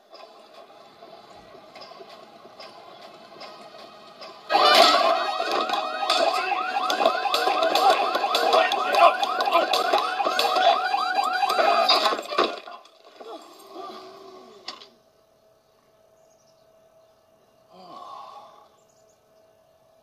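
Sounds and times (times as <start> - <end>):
car alarm warbling: 4.5 - 12.6.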